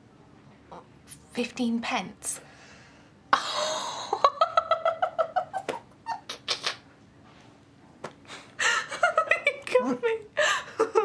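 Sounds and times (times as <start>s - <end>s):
woman laughing: 3.4s - 6.4s, 8.6s - 11.0s.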